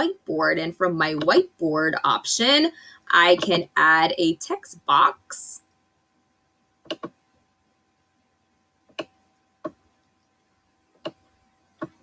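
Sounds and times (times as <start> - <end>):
computer mouse clicking: 6.8 - 7.2, 8.9 - 10.3, 10.9 - 12.0.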